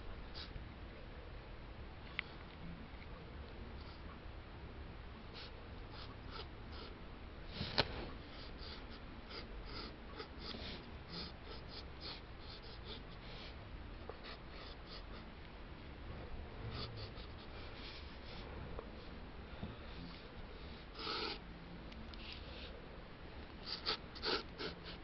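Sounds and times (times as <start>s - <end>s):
pencil scratching on paper: 5.4s - 6.9s, 8.3s - 13.1s, 16.7s - 18.4s, 23.6s - 25.0s.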